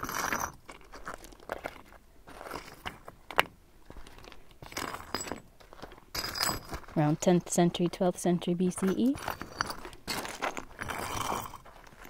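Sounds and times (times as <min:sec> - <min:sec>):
pebbles crunching on stony ground: 0:00.0 - 0:07.2, 0:09.0 - 0:12.0.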